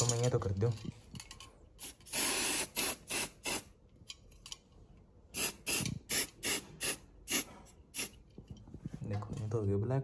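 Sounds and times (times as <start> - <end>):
spray-paint can hissing: 1.8 - 3.7, 5.3 - 8.2.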